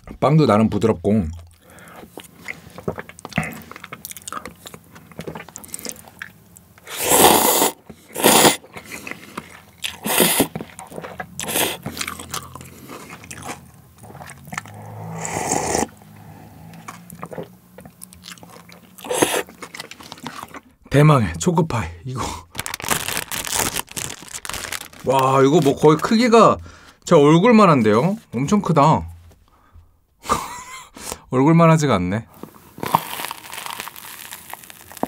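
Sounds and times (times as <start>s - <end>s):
chewing and mouth noises: 1.3s - 20.8s
slurping noodles: 6.8s - 17.6s, 18.4s - 20.6s.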